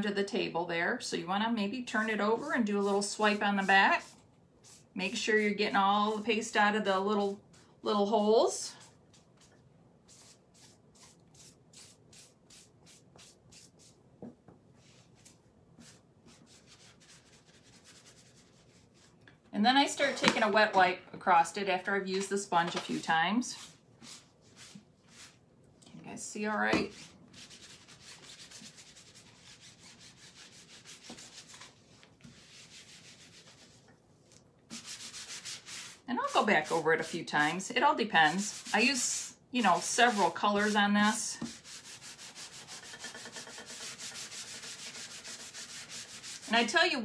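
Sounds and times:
sponge scrubbing a stencil: 1.9 - 6.3, 6.9 - 14.0, 14.8 - 19.2, 23.6 - 25.4, 26.9 - 33.9, 34.7 - 46.8
wet wipe scrubbing plastic stencil: 34.7 - 46.8.

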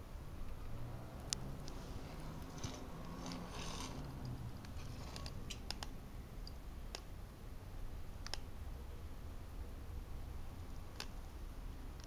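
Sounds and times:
low steady hum: 0.0 - 12.0
small sharp clicks: 2.4 - 7.1, 8.2 - 8.5, 11.0 - 11.2.

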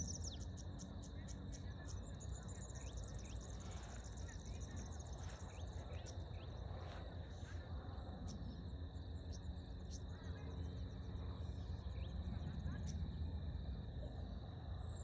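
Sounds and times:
bird chirps: 0.0 - 7.0
insects chirping: 0.0 - 15.0.

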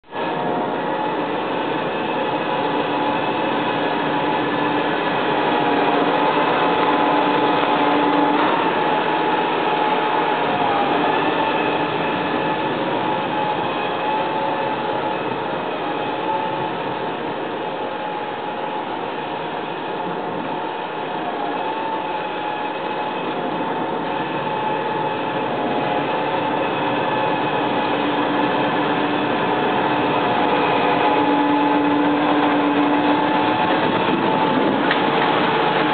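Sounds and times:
tractor diesel engine running hard: 0.0 - 35.9.

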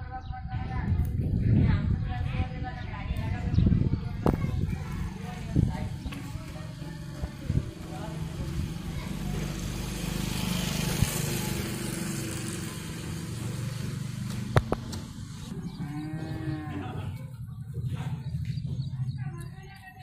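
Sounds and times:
livestock mooing: 15.5 - 17.2.

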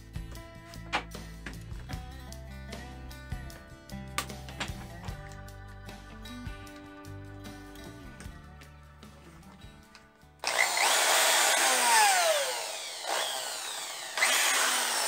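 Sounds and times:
drill motor whine: 10.4 - 15.0.

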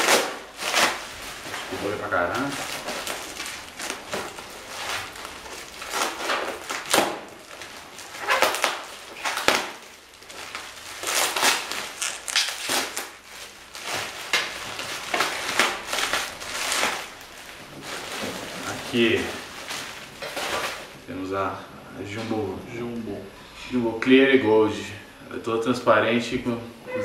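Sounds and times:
bubble wrap crinkling: 0.0 - 21.1.

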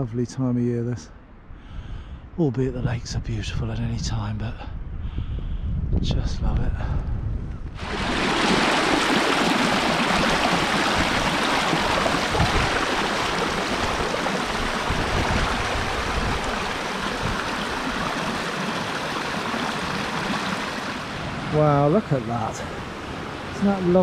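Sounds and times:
water rushing over stones: 7.8 - 21.3.

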